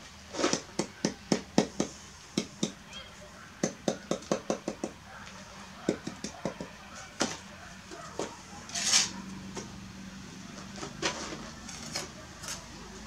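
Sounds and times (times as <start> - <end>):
rasp: 8.7 - 9.2.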